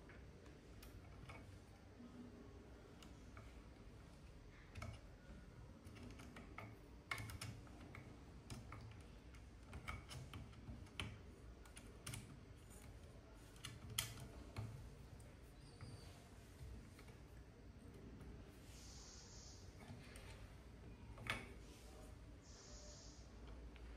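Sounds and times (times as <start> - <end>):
small clicks and taps: 0.0 - 1.8, 2.9 - 18.4.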